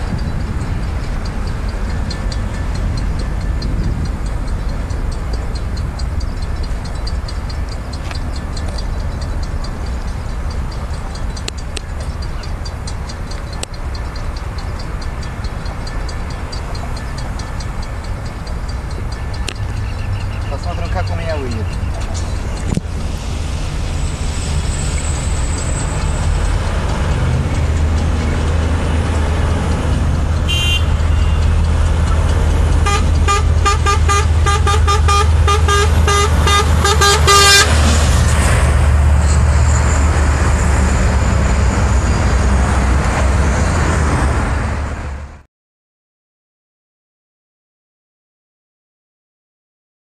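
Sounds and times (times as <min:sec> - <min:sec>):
truck diesel engine passing: 0:00.0 - 0:45.4
truck horn toots: 0:28.5 - 0:37.9.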